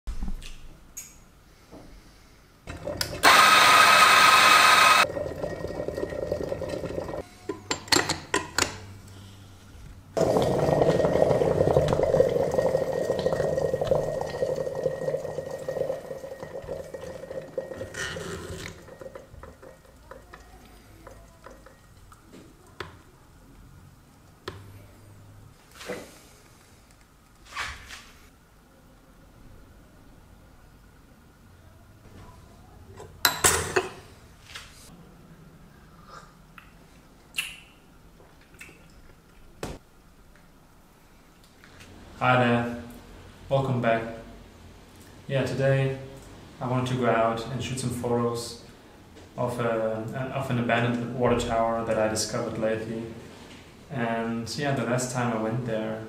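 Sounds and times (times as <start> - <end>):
coffee grinder running: 2.7 - 7.2
coffee pouring into glass: 4.6 - 7.2, 10.2 - 22.2.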